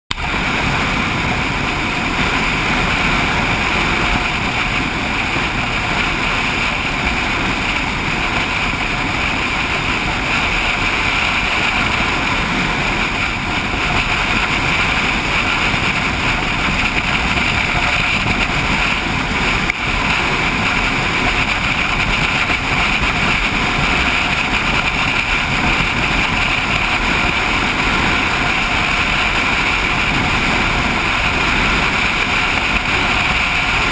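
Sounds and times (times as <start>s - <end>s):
motorcycle engine and road noise: 0.1s - 33.9s
wind rushing over microphone: 0.1s - 33.9s.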